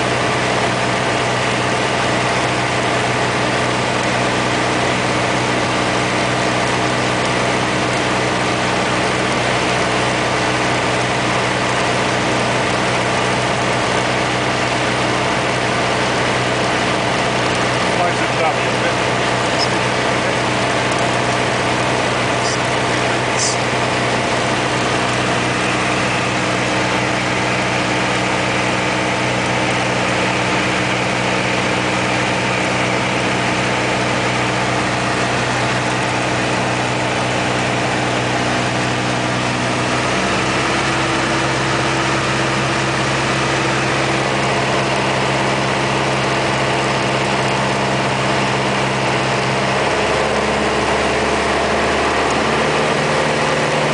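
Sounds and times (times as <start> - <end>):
aircraft engine and propeller droning: 0.0 - 53.9.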